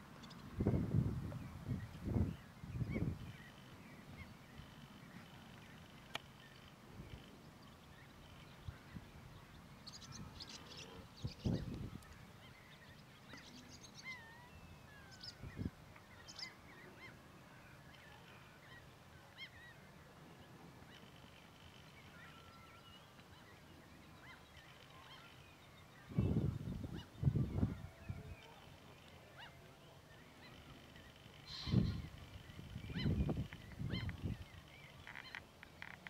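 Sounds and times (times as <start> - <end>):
goslings peeping: 30.5 - 34.4.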